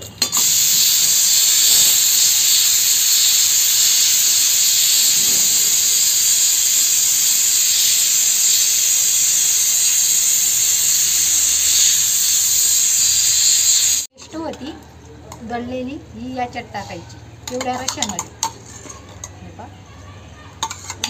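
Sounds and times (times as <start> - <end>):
pressure cooker steam hissing: 0.0 - 14.1.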